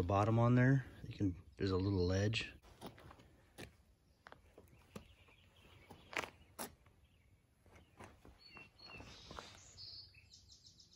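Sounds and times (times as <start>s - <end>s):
faint footsteps on asphalt: 2.4s - 10.0s
bird chirping: 3.9s - 10.9s.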